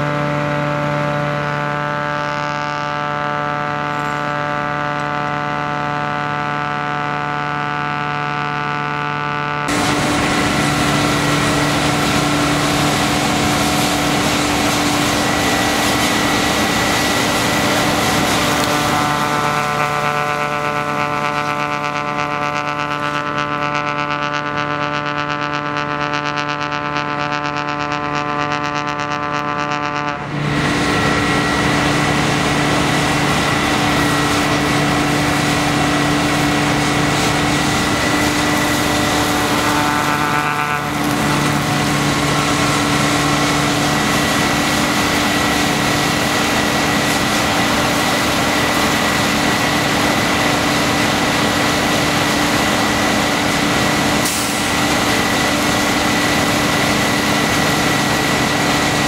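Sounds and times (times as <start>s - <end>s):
snow blower engine drone: 0.0s - 59.0s
rush of blown snow: 9.7s - 26.4s, 30.2s - 59.0s.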